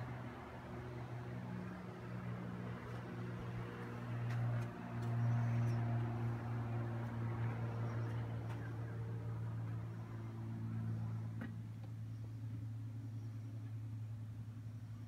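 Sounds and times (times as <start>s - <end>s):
low machine hum: 0.0s - 15.0s.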